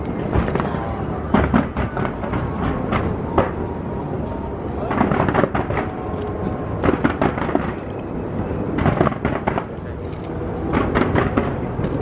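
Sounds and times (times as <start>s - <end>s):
sharp firework cracks: 0.0s - 3.6s, 4.9s - 8.1s, 8.7s - 9.8s, 10.7s - 12.0s
rumble of firework bangs: 0.0s - 12.0s.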